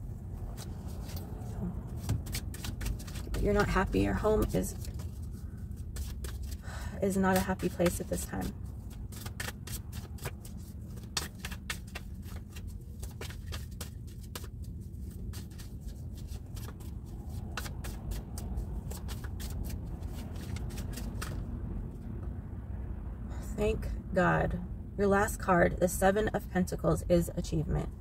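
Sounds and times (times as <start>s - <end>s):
steady low rumble: 0.0s - 28.0s
cards being shuffled: 0.5s - 6.6s, 7.2s - 21.5s.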